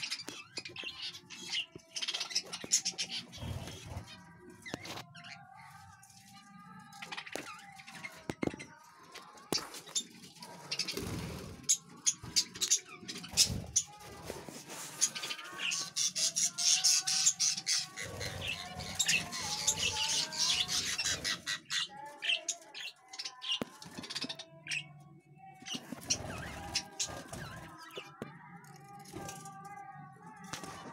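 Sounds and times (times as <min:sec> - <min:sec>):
budgerigars chattering and squawking: 0:15.1 - 0:24.8.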